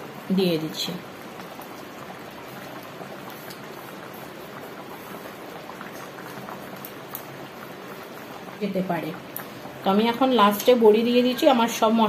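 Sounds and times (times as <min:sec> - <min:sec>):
curry simmering in a pot: 0:00.0 - 0:12.0.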